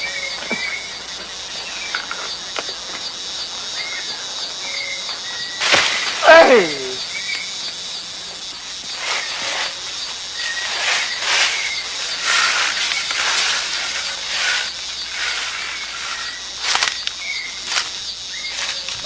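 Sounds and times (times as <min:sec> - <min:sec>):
high insect trill: 0:00.0 - 0:19.0
branches and leaves rustling: 0:08.9 - 0:19.0.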